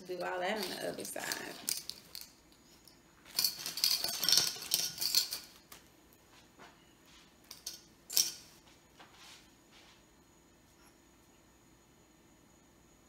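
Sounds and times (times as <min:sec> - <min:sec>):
metal clips clinking: 0:00.2 - 0:05.7, 0:07.5 - 0:08.5.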